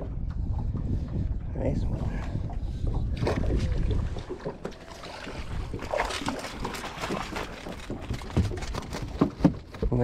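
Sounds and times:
wind rumbling on microphone: 0.0s - 10.0s
fish splashing in net: 5.1s - 8.4s.

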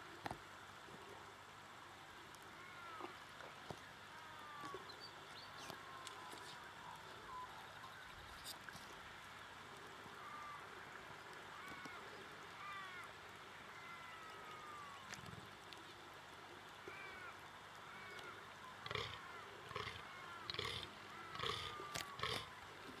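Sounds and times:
deer groaning: 18.8s - 22.5s.

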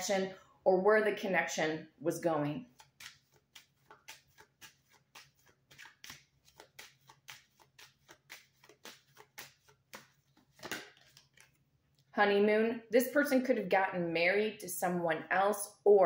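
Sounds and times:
cards being shuffled: 2.7s - 11.7s.

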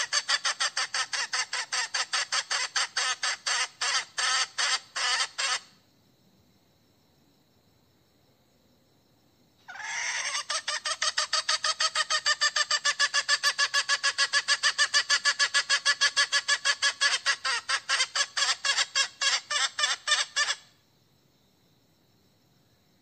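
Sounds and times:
hen clucking call: 0.0s - 5.7s, 9.7s - 20.6s.

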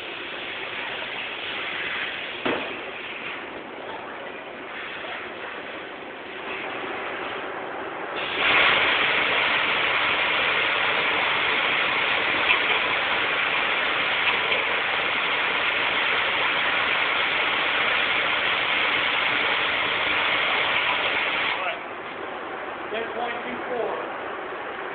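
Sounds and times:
grinder hissing rush: 8.2s - 21.7s.

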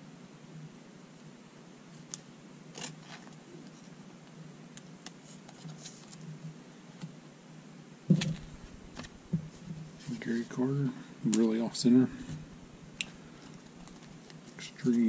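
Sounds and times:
cards rustling and clicking: 2.1s - 4.0s, 5.0s - 6.3s, 8.2s - 10.5s, 11.3s - 15.0s
thump: 8.1s - 9.6s.

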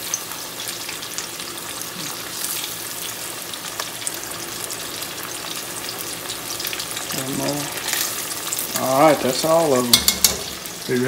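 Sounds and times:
fish deep-frying in hot grease: 0.0s - 11.0s
small crackles and pops: 3.7s - 4.7s.

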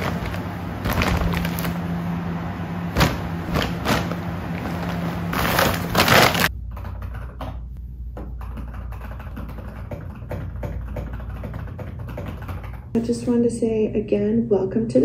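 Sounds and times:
plastic bags rustling: 0.0s - 2.2s, 2.9s - 6.5s
steady low hum: 0.0s - 15.0s.

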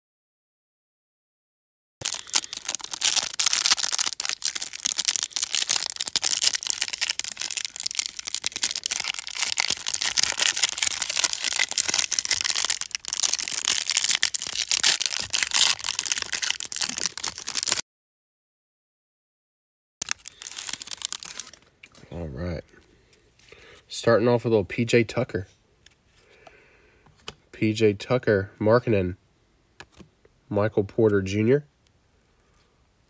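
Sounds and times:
plastic wrapper crinkling and tearing: 2.0s - 17.8s, 20.0s - 22.0s.

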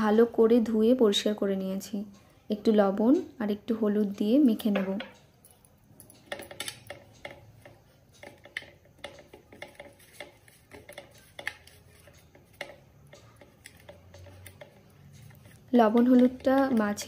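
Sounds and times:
bangles clicking: 3.9s - 17.0s.

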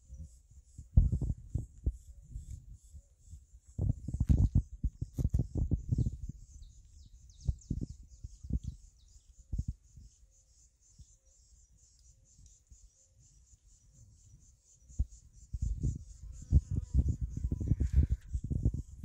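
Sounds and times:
insect pulsing trill: 0.0s - 19.0s.

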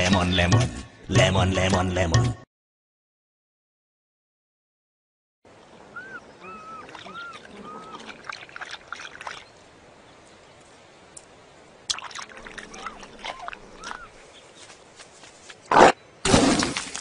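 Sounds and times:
cheetah chirping: 5.9s - 8.1s, 12.4s - 14.5s
crackling rustles: 12.4s - 15.7s, 16.3s - 17.0s.

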